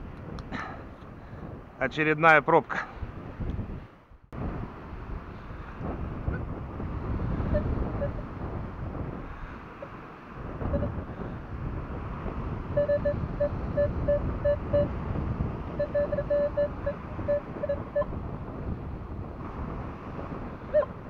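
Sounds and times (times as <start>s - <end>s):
wind noise on microphone: 0.0s - 1.8s, 2.7s - 21.0s
metal detector beeping: 10.7s - 10.9s, 12.8s - 14.9s, 15.8s - 18.1s, 20.7s - 20.9s.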